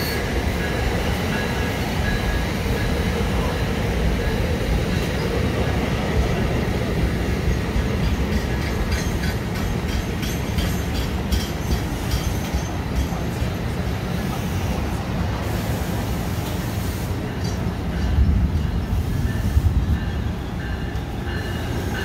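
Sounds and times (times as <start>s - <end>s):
train coaches rumbling past: 0.0s - 22.0s
wheels clicking on rails: 7.4s - 13.7s.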